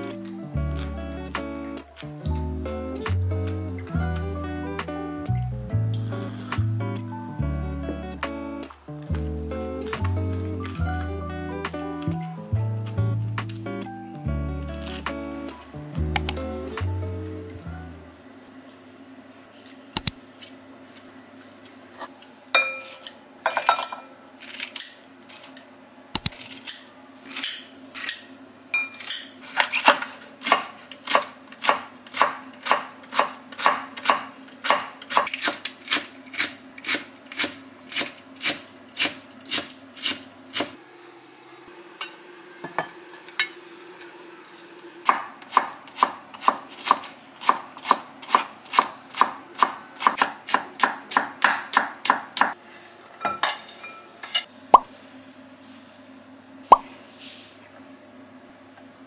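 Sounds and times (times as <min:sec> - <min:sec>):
knife chopping on cutting board: 0:45.1 - 0:52.6.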